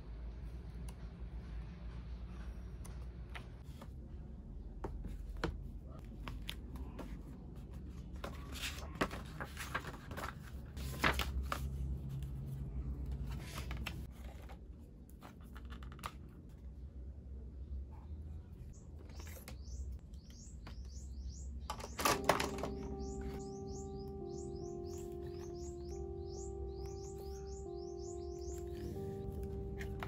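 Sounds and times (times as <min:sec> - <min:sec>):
paper pages flipping: 0:06.1 - 0:12.3.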